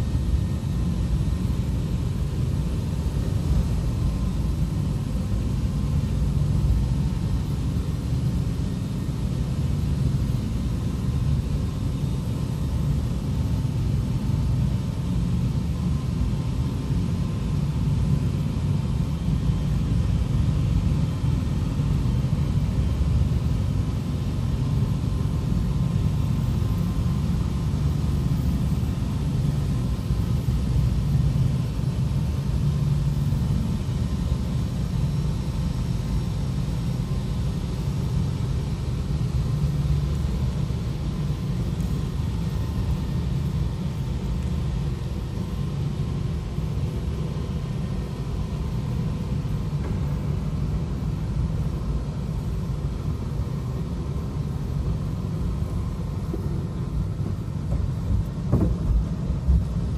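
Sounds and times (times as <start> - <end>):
car wash machinery: 14.1 - 59.9
low rumble inside car: 47.0 - 59.9.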